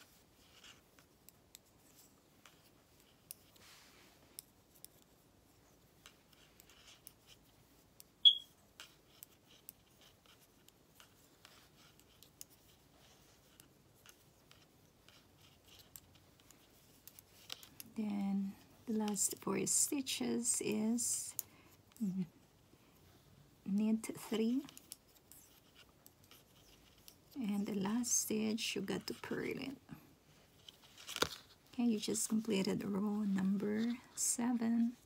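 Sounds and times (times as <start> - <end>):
knitting needles clicking: 24.6 - 27.4.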